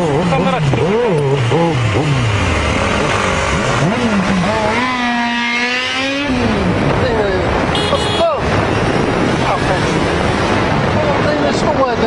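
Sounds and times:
motorcycle engine revving: 0.0s - 11.3s
motorcycle engines running: 0.0s - 12.0s
wind noise: 0.0s - 12.0s.

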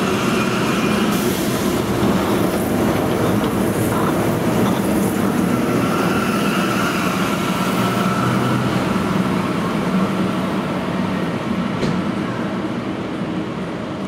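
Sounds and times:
tram passing: 0.0s - 14.0s.

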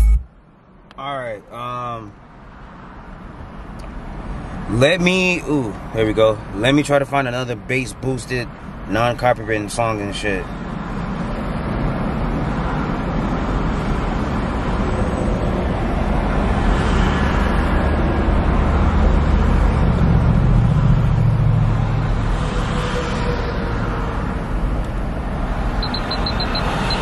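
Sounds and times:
road traffic rumbling: 0.0s - 27.0s
vehicle passing: 11.4s - 27.0s.

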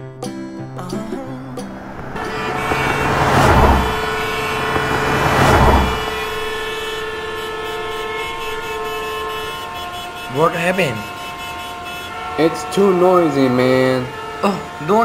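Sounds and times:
cars whooshing past: 0.8s - 9.8s
car horn sounding: 1.3s - 15.0s.

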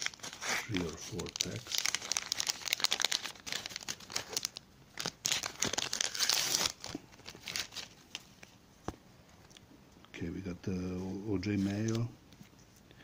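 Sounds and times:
paper wrapper crinkling and tearing: 0.0s - 8.6s.

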